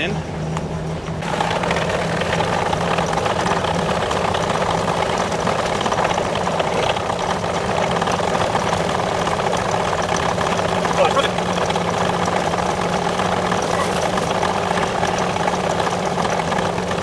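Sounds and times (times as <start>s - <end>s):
tractor diesel engine clatter: 0.0s - 17.0s.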